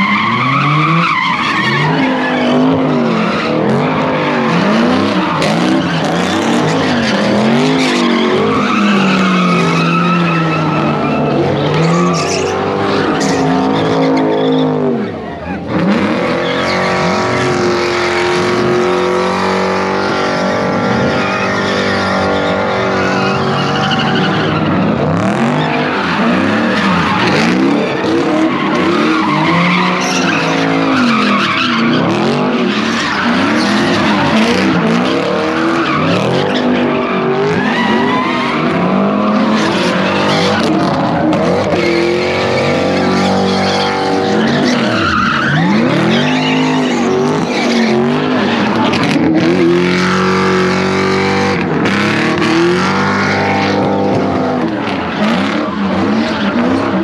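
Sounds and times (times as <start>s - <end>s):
car engines revving: 0.0s - 57.0s
tires screeching: 0.0s - 57.0s.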